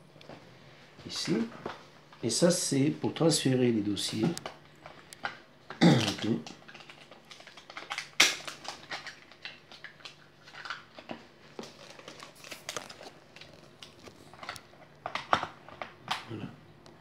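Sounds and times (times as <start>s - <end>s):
handling cardboard box and plastic: 10.4s - 16.0s.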